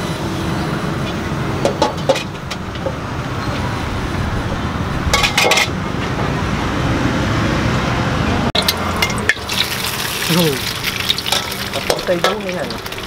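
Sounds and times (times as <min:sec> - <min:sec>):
street traffic: 0:00.0 - 0:13.0
kitchenware clinking: 0:05.1 - 0:05.8, 0:11.2 - 0:12.5.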